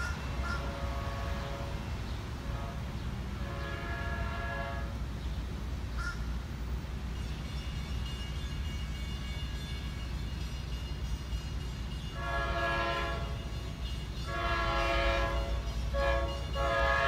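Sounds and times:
crow cawing: 0.0 - 0.6, 6.0 - 6.2
train air horn: 0.0 - 5.1, 12.1 - 17.0.

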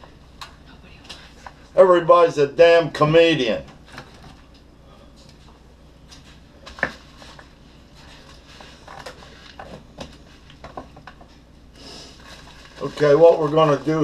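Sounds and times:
paper envelope rustling: 6.2 - 10.6, 12.2 - 14.0.

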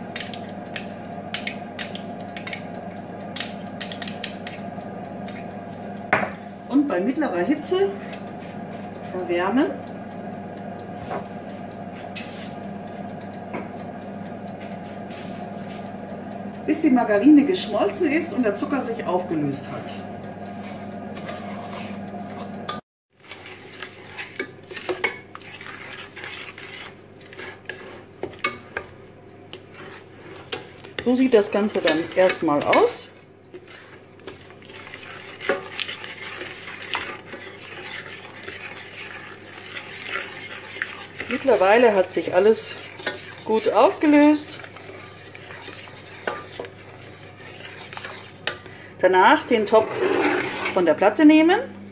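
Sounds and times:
low electrical hum: 0.0 - 51.9
wooden spoon scraping steel pot: 20.6 - 22.6, 23.2 - 51.6.

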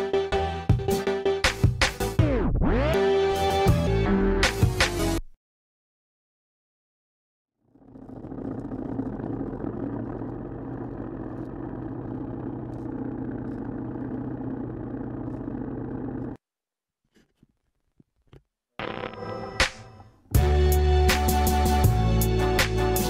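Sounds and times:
dirt bike engine running: 7.8 - 16.4.

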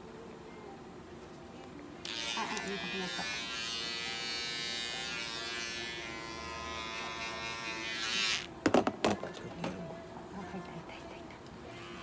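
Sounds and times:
electric hair clipper buzzing: 2.0 - 8.5, 11.7 - 12.0.

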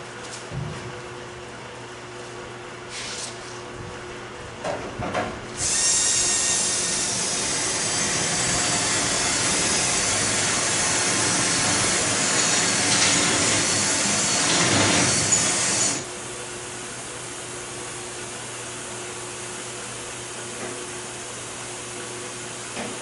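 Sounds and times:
electric drill whining: 5.6 - 16.0.

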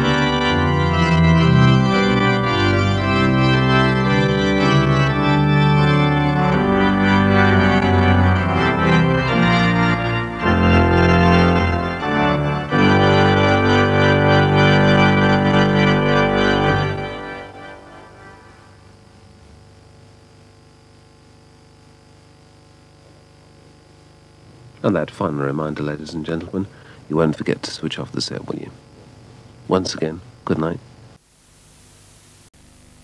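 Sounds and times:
slow organ chords: 0.0 - 20.7.

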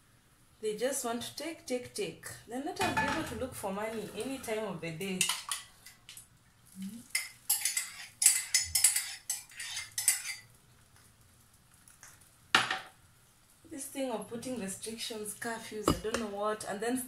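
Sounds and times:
metal spoon scraping ceramic mug: 7.2 - 10.4.

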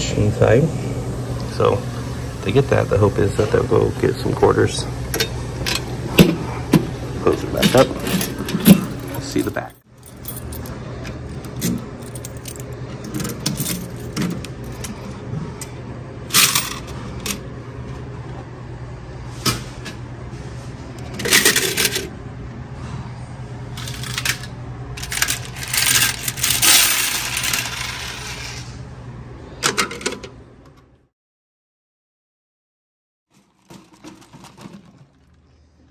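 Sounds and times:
coins jingling in plastic trays: 23.8 - 28.2.

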